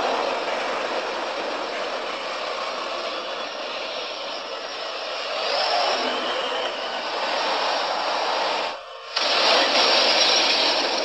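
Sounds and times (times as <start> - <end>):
flames rushing: 0.0 - 11.0.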